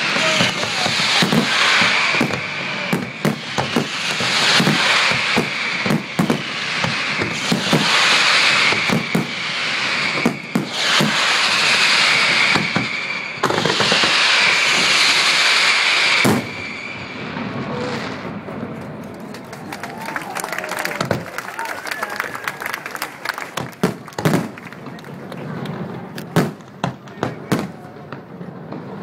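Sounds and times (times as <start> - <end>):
fireworks crackling hiss: 0.0 - 19.0
fireworks bangs: 0.0 - 29.0.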